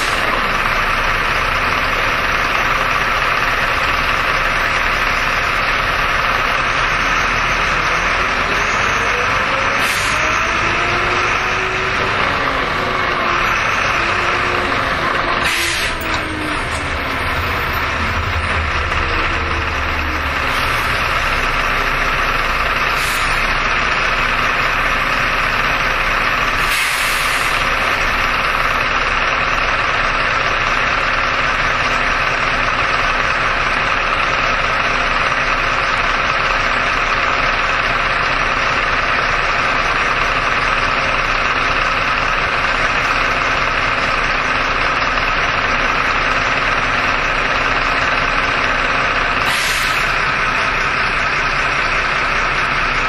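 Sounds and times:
bus diesel engine: 0:00.0 - 0:53.0
compressed air hisses: 0:26.6 - 0:27.6.

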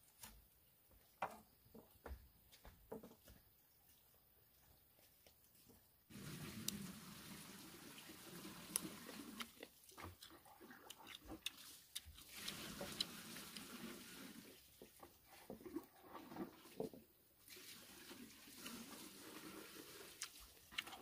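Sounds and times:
person crunching fruit: 0:08.2 - 0:13.8, 0:19.5 - 0:21.0.

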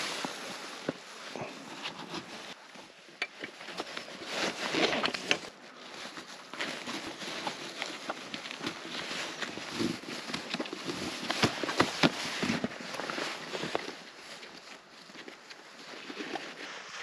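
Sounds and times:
coated fabric rustling: 0:00.0 - 0:17.0.

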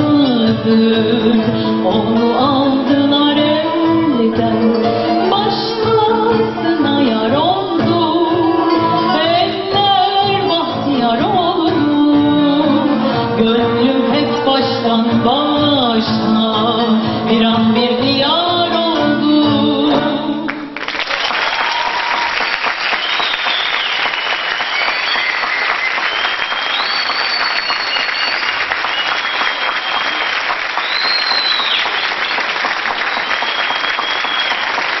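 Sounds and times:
singer and orchestra: 0:00.0 - 0:20.8
audience applauding: 0:20.5 - 0:35.0
high whistles: 0:22.9 - 0:34.8.

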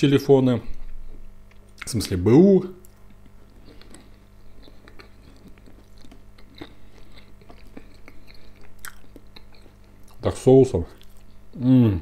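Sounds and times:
faint electrical hum: 0:00.0 - 0:12.0
person chewing food: 0:02.8 - 0:10.3, 0:10.9 - 0:11.6.

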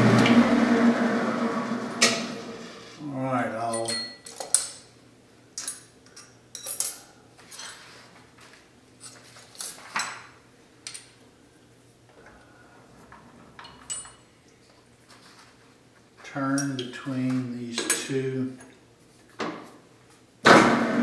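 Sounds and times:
metal tools clinking: 0:03.6 - 0:04.8, 0:05.6 - 0:07.9, 0:13.6 - 0:14.3.

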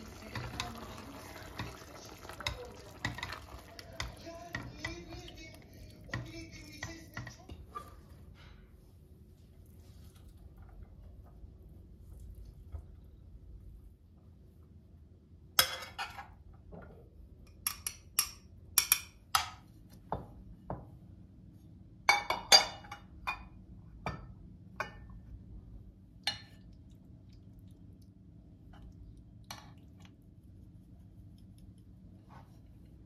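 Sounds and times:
ceramic dishes clinking: 0:22.1 - 0:23.5.

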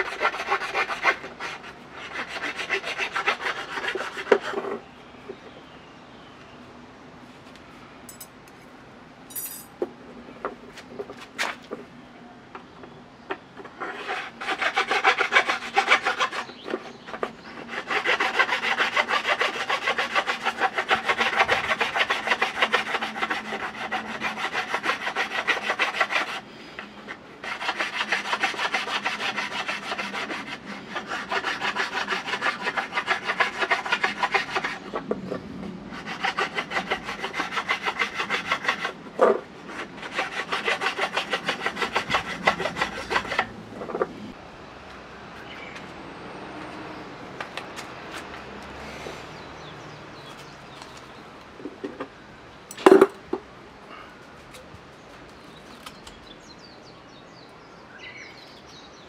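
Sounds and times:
hand tool scraping bamboo: 0:00.0 - 0:04.9, 0:13.6 - 0:44.0.

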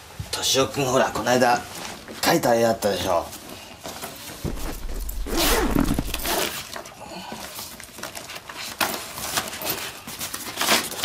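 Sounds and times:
paper rustling: 0:04.4 - 0:06.5.

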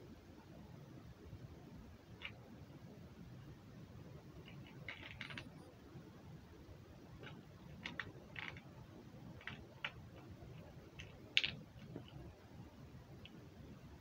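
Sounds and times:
small plastic object clicking: 0:04.4 - 0:05.5, 0:07.2 - 0:08.7.

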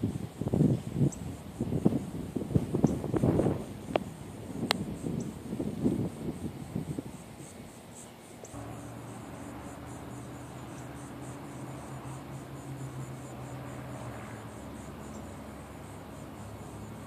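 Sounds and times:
insects chirping: 0:00.0 - 0:17.0
steady low hum: 0:08.4 - 0:17.0.

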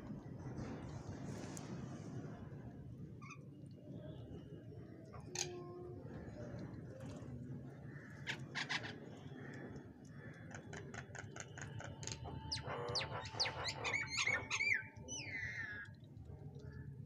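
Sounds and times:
birds chirping: 0:08.2 - 0:15.9
birds whistling: 0:12.4 - 0:15.8.

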